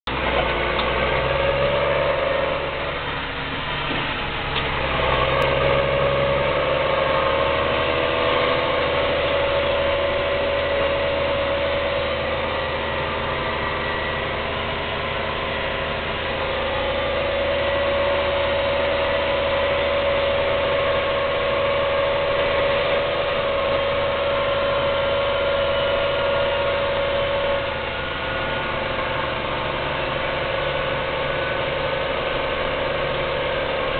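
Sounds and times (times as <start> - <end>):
steady whine: 0.0 - 33.9
tractor diesel engine under load: 0.0 - 33.9.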